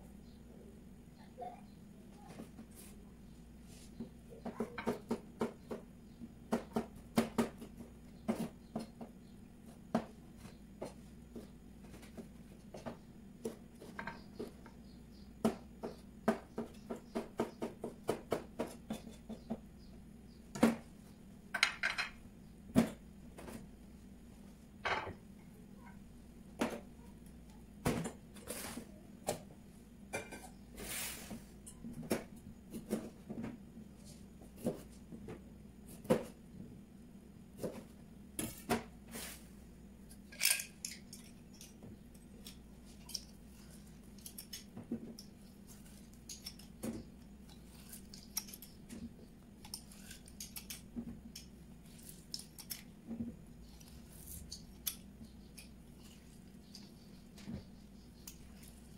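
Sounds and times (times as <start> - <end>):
metal utensils clinking: 40.3 - 41.3
limes being cut and squeezed: 49.6 - 53.0.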